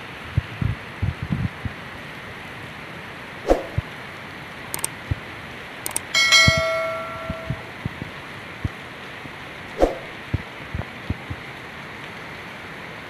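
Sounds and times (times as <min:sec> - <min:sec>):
heavy rain hiss: 0:00.0 - 0:06.0, 0:07.6 - 0:13.0
wind thumps on microphone: 0:00.3 - 0:01.8, 0:09.8 - 0:11.4
mouse clicks: 0:05.9 - 0:06.1
bell-like notification chime: 0:06.2 - 0:07.8.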